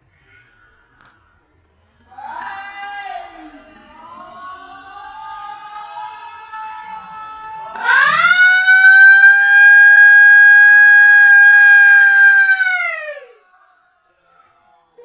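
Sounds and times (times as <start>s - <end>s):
siren wail: 7.7s - 13.4s.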